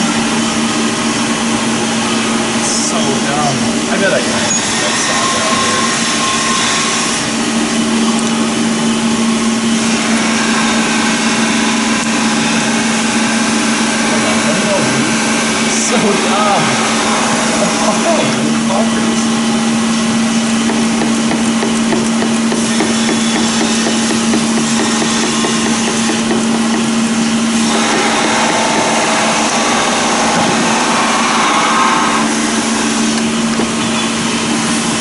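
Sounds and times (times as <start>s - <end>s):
machine humming: 0.0s - 35.0s
loud rushing noise: 27.3s - 33.5s.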